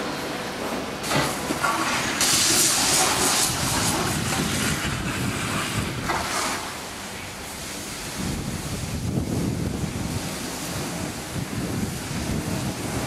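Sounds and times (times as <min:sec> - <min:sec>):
lorry engine and tyres rumbling: 0:00.0 - 0:13.0
wind rushing on microphone: 0:02.2 - 0:06.6, 0:08.0 - 0:13.0.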